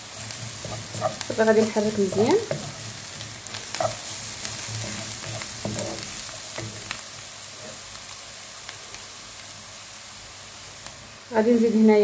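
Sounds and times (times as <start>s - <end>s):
onions sizzling in oil: 0.0s - 12.0s
wooden spoon scraping pan: 0.2s - 6.9s.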